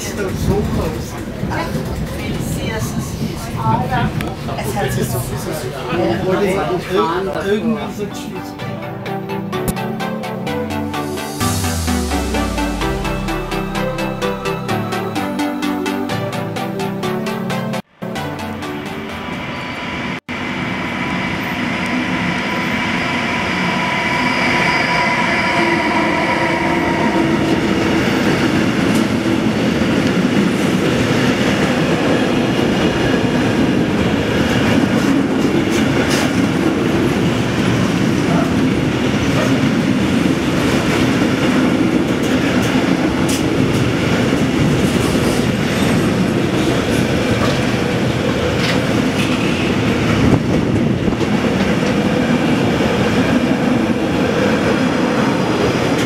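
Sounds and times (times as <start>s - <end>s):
train wheels rolling on rails: 0.0s - 5.8s, 21.1s - 56.0s
high whine: 8.0s - 20.9s, 21.5s - 29.3s.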